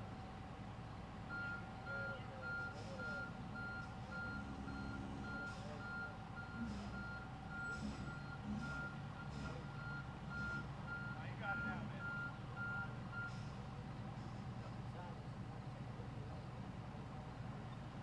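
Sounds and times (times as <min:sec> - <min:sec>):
engines rumbling: 0:00.0 - 0:18.0
reversing alarm beeping: 0:01.3 - 0:13.4.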